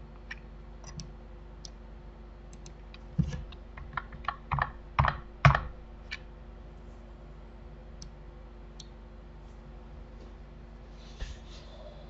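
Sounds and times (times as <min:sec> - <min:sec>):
faint steady hum: 0:00.0 - 0:12.0
keyboard and mouse clicking: 0:00.2 - 0:01.8, 0:02.5 - 0:06.2.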